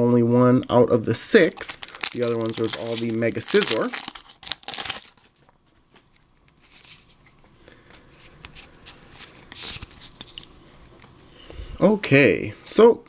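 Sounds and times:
trading cards being shuffled: 1.4 - 5.3
foil wrapper crinkling: 1.4 - 7.0.

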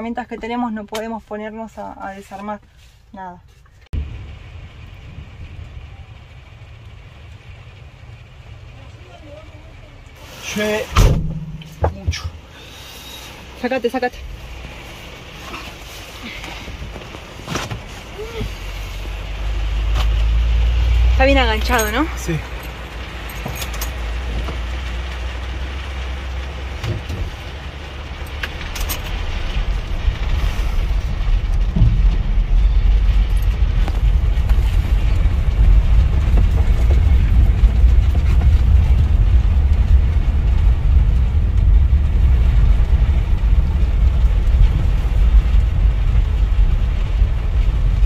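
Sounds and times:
low steady rumble of towed vehicle: 0.0 - 48.0
rain on windshield: 0.0 - 48.0.

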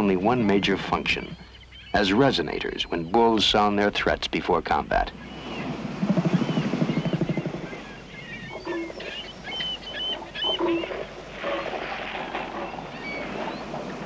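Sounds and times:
animal calls: 5.1 - 14.0
elephant seal threat call: 5.1 - 14.0.

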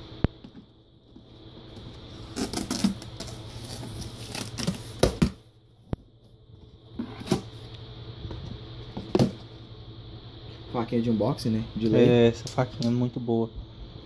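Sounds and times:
cardboard rustling and scraping: 1.8 - 5.3
knife slitting packing tape: 2.2 - 4.8.

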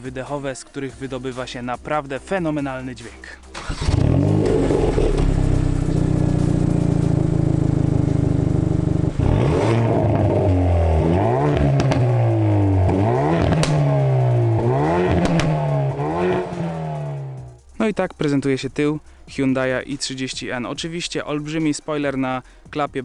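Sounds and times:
exhaust cracks: 3.5 - 17.6
car engine idling and revving: 3.5 - 17.7.

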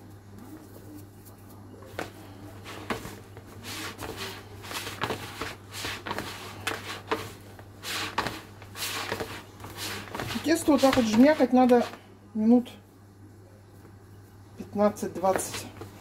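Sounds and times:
dough rubbing against bowl: 0.0 - 12.0
hands kneading dough: 0.0 - 12.0.

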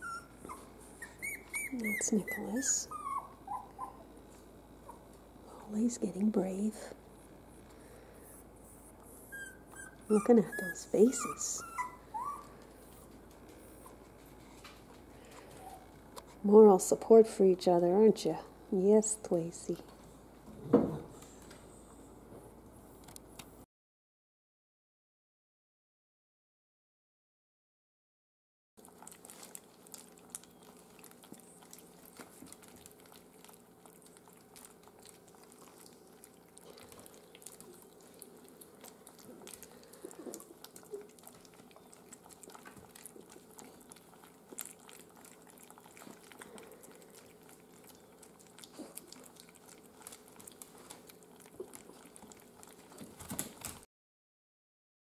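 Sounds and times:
puppies lapping and smacking food: 0.0 - 6.8, 7.6 - 17.2, 28.8 - 53.9
steady low hum: 0.0 - 23.6.

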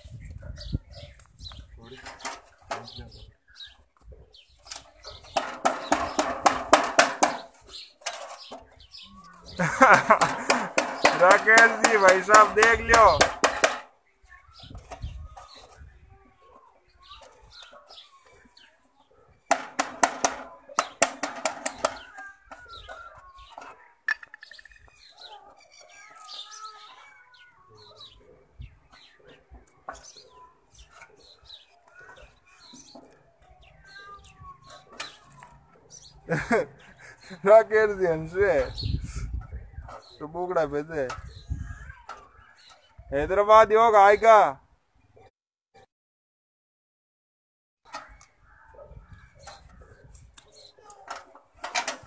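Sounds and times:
chickens clucking: 0.0 - 13.8.

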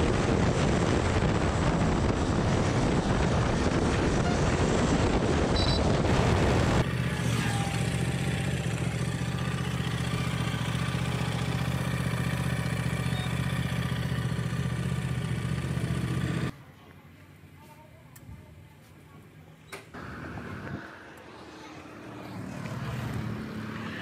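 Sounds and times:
wind noise on microphone: 0.0 - 6.8
motorcycle engine running: 0.0 - 16.6.

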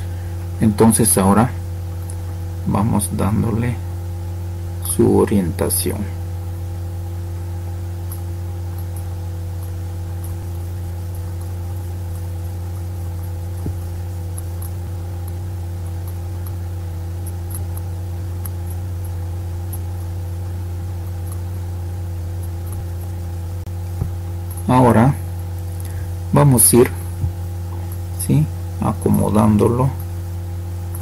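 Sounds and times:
steady low hum: 0.0 - 31.0.

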